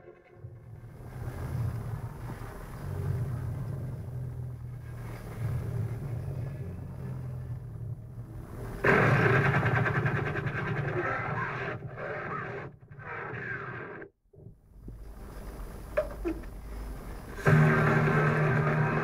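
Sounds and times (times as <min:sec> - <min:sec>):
low engine-like rumble: 0:00.0 - 0:13.5, 0:14.3 - 0:19.0
loud rattling engine-like sound: 0:00.6 - 0:11.9, 0:17.4 - 0:19.0.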